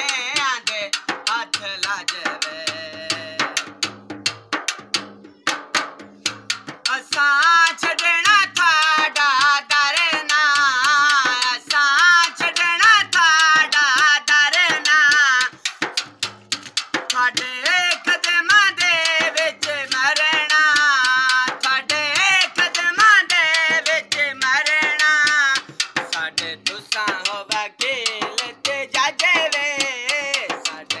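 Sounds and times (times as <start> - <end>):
man singing: 0.0 - 3.9, 6.8 - 16.0, 16.9 - 31.0
hand drum beats: 0.0 - 31.0.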